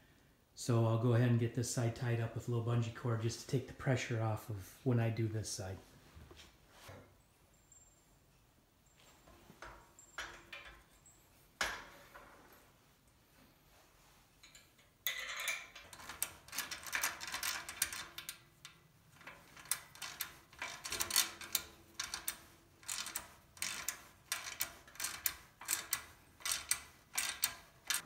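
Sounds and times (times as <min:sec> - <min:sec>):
ratcheting hand tool clicking: 0:14.4 - 0:28.0.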